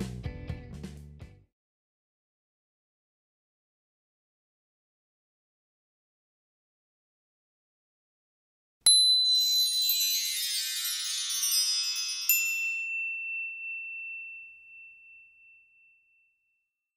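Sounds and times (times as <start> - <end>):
shimmering high tinkling chimes: 8.9 - 16.4
bright ding: 12.2 - 16.7.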